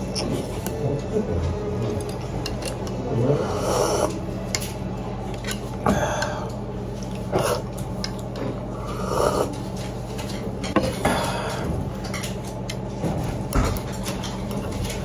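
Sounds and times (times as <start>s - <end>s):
person slurping soup: 3.2s - 4.2s.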